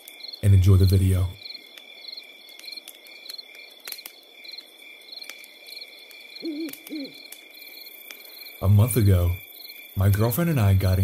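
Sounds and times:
campfire crackling: 0.0 - 11.0
crickets chirping: 0.0 - 11.0.

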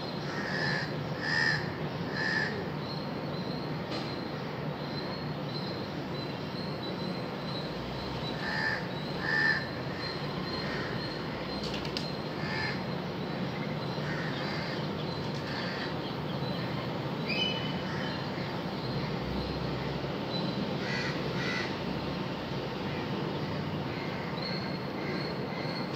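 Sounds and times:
steady background noise: 0.0 - 25.9
crows cawing: 0.2 - 2.6, 8.4 - 11.2, 12.4 - 12.8, 14.0 - 14.8, 15.4 - 15.9, 20.8 - 21.8.

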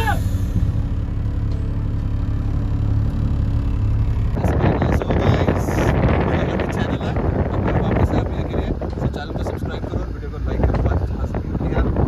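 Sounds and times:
sports car engine idling: 0.0 - 12.0
wind buffeting microphone: 4.0 - 12.0.

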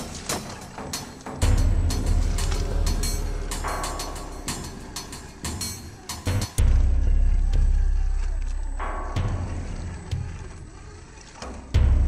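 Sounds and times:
heavy bass: 1.4 - 10.4.

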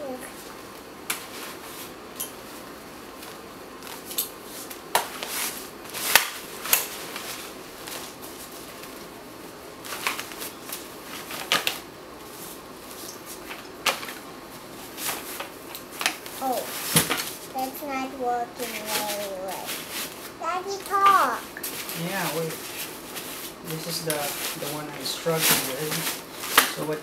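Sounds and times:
low room hum: 0.0 - 27.0.

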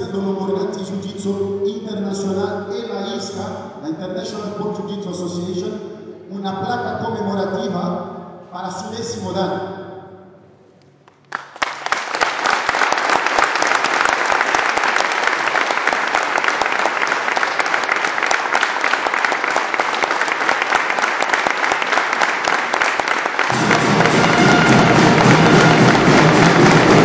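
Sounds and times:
audience applauding: 11.1 - 27.0
music: 23.5 - 27.0.

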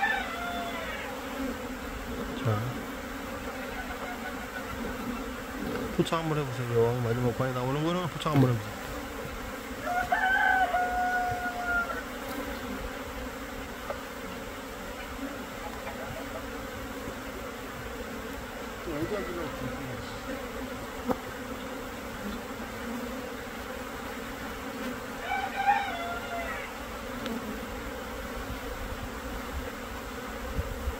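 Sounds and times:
rooster crowing: 0.0 - 1.2, 9.8 - 12.2, 25.2 - 26.8
honeybee swarm buzzing: 0.0 - 30.9.

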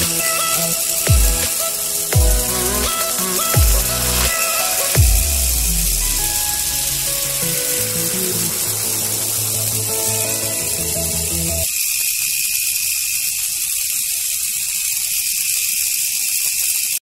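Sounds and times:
background music: 0.0 - 11.7
small electric motors whirring: 0.0 - 17.0.

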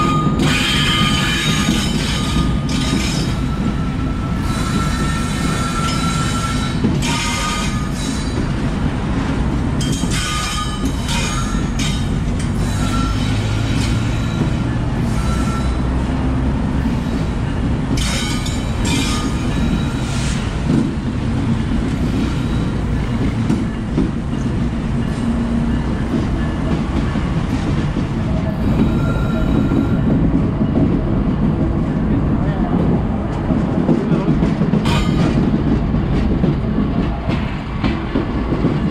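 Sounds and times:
diesel locomotive engine rumble: 0.0 - 38.9
steel wheels on rail: 0.0 - 38.9
wheel squeaks and clanks: 9.8 - 15.9.

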